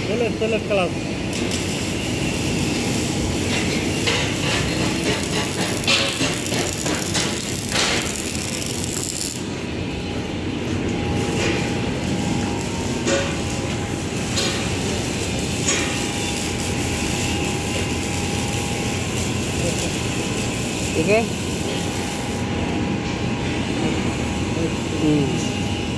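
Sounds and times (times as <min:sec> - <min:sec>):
metal shop noise: 0:01.3 - 0:09.8, 0:10.8 - 0:22.4
metal knocks and clanks: 0:03.5 - 0:08.2.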